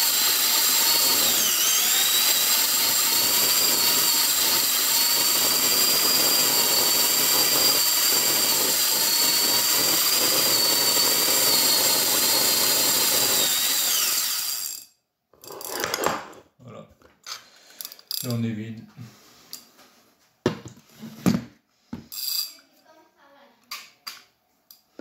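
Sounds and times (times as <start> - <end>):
electric drill whining: 0.0 - 14.9.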